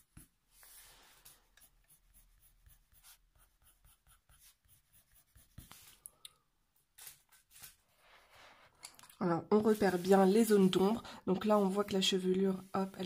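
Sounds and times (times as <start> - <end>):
pencil scratching on paper: 0.0 - 6.0.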